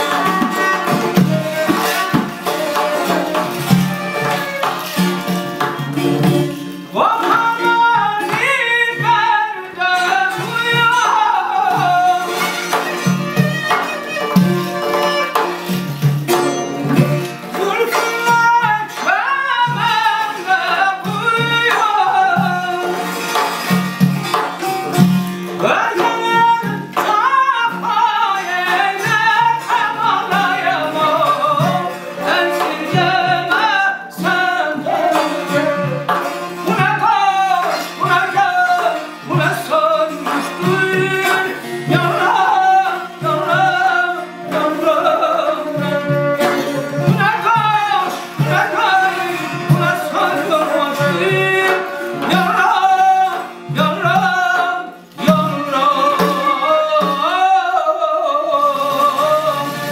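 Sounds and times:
spike fiddle: 0.0 - 6.2, 10.0 - 20.8
double-headed drum beating: 0.0 - 57.5
frame drum: 0.0 - 57.9
long-necked lute: 0.0 - 59.9
man singing ornamented phrases: 6.8 - 13.4, 16.9 - 23.3, 25.5 - 59.9.

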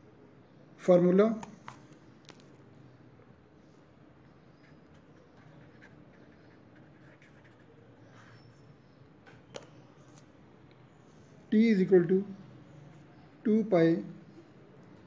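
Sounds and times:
pen scratching on paper: 4.3 - 8.7.

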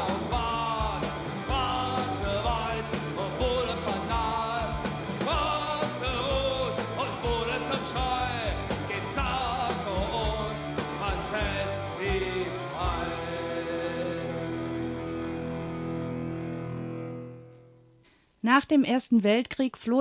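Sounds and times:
rock band with drum beat: 0.0 - 14.2
lead vocal singing: 0.0 - 15.2.

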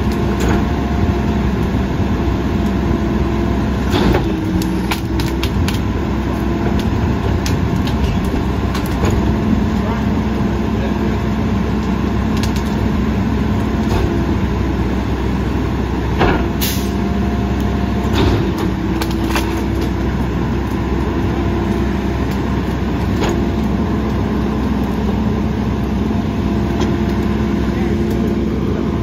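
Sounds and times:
garbage truck running: 0.0 - 29.0
hydraulic packer compacting branches: 0.0 - 29.0
sharp knocks and cracks: 3.8 - 9.8, 11.8 - 12.9, 18.1 - 20.8.

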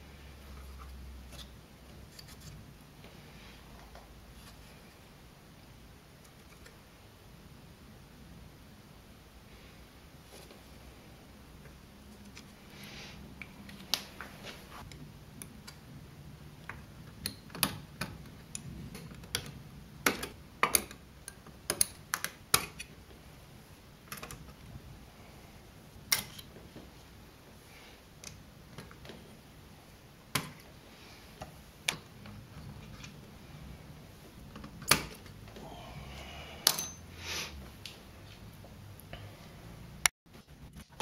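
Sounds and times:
fingers clicking and tapping metal: 16.6 - 22.9.

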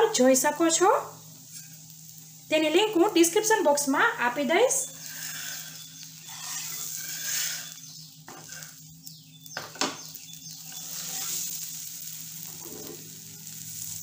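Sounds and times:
bread sizzling on griddle: 0.0 - 14.0
metal spatula scraping: 5.0 - 8.8, 10.7 - 11.7, 12.4 - 13.2.

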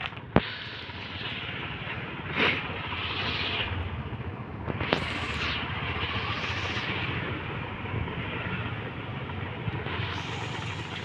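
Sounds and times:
pot boiling with rushing hiss: 0.0 - 11.0.

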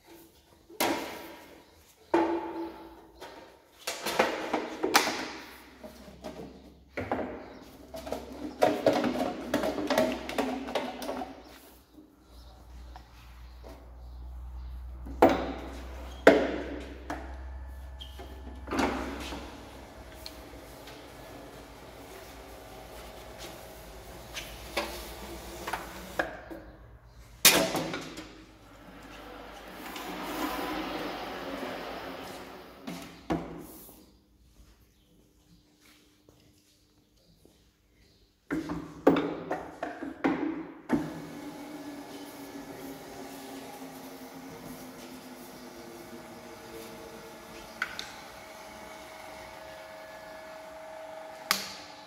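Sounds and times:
seaming machine humming: 17.7 - 26.2, 28.7 - 32.8, 41.2 - 52.0.

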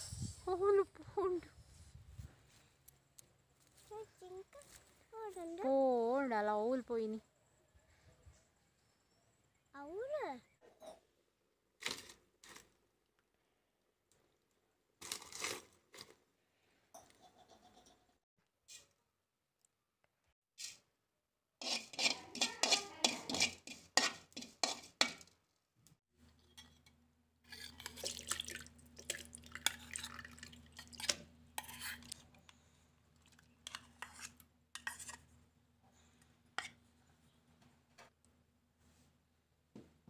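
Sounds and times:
metal spoon scraping a pan: 21.6 - 25.2, 26.3 - 28.4, 29.6 - 32.2, 33.6 - 35.3.

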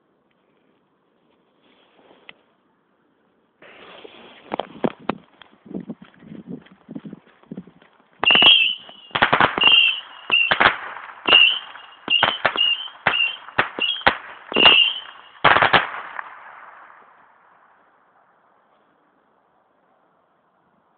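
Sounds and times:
firework whistles: 8.2 - 16.2
firework bangs: 8.2 - 17.4.

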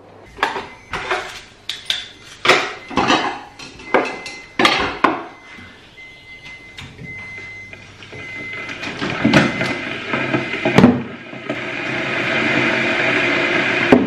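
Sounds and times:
crockery and cutlery clinking: 0.4 - 5.3.

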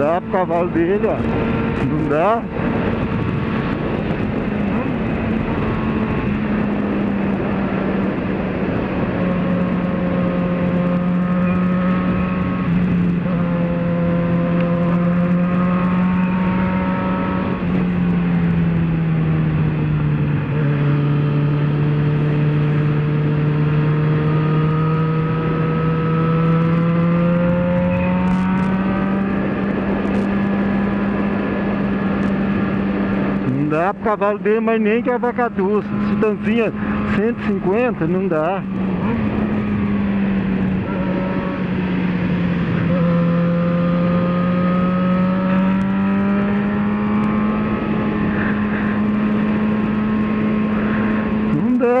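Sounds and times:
wind rush: 0.0 - 33.6
motorcycle engine running: 0.0 - 52.0.

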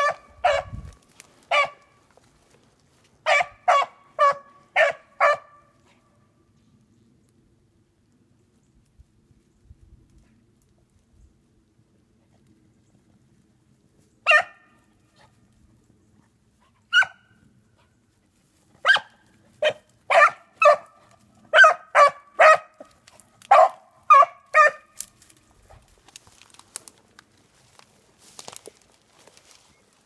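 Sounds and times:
dog barking: 0.0 - 0.8, 1.5 - 1.9, 3.2 - 5.7, 14.2 - 14.8, 16.9 - 17.4, 18.8 - 22.8, 23.4 - 24.9.

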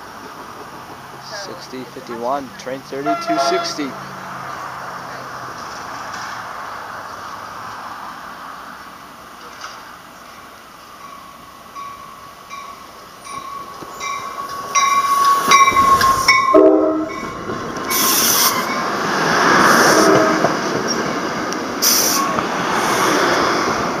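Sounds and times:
train cars rumbling past: 0.0 - 24.0
train horn blast: 3.0 - 4.0, 16.4 - 17.3, 19.8 - 20.6
train bell ringing: 11.0 - 19.0
air brake hissing: 21.8 - 23.2.

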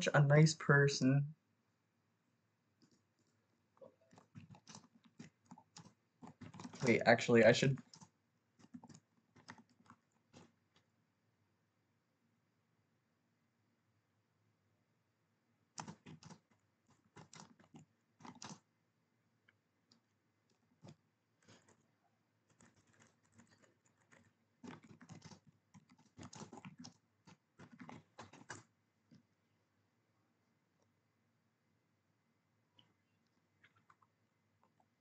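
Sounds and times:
typing on computer keyboard: 4.1 - 10.6, 15.8 - 18.7, 22.5 - 28.7.

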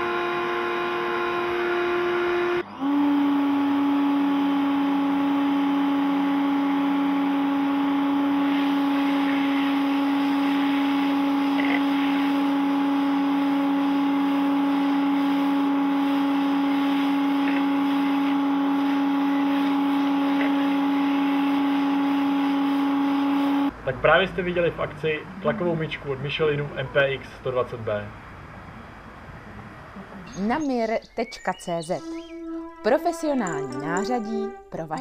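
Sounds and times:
pressure washer motor hum: 0.0 - 23.9.

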